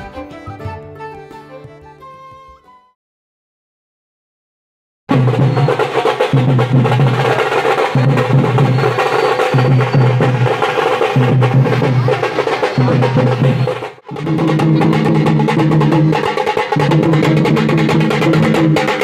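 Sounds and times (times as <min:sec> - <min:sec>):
deep drum beat: 0:05.1 - 0:19.0
drum troupe playing fast: 0:05.1 - 0:19.0.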